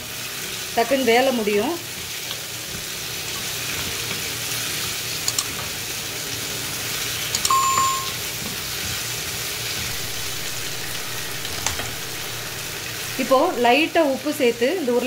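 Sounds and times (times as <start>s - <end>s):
potatoes sizzling in oil: 0.0s - 7.4s, 8.2s - 15.0s
short electronic chime: 7.5s - 8.2s, 9.8s - 13.8s.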